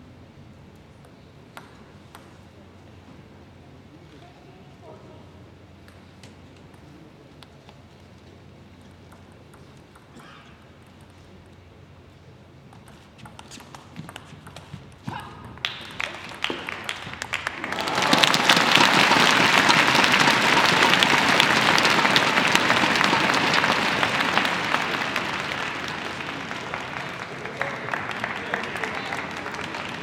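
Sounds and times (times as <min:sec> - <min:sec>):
table tennis ball clicking: 0:09.0 - 0:10.2
crowd applause: 0:15.6 - 0:30.0.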